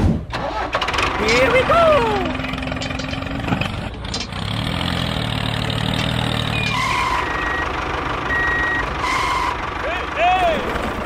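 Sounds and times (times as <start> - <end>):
tractor engine running: 0.0 - 11.0
reversing alarm beeps: 6.5 - 7.7, 8.3 - 8.9.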